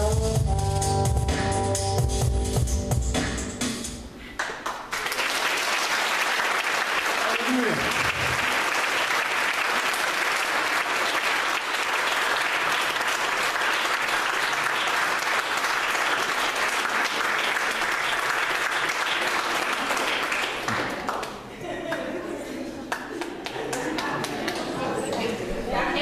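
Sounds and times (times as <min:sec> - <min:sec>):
congregation applauding: 0:04.4 - 0:22.1, 0:22.9 - 0:25.3.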